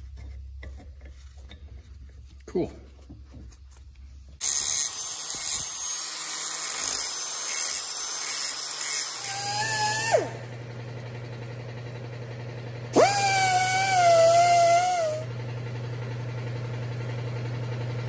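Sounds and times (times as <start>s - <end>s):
angle grinder grinding metal: 4.4s - 10.6s, 13.0s - 15.3s.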